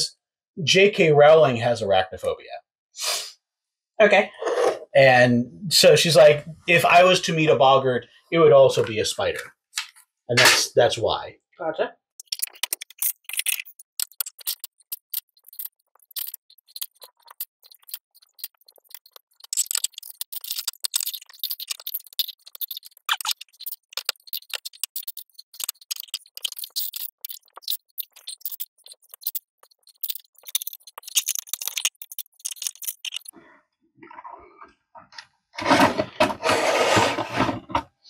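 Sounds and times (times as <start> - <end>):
plastic bricks rattling and clicking: 12.2 - 33.4.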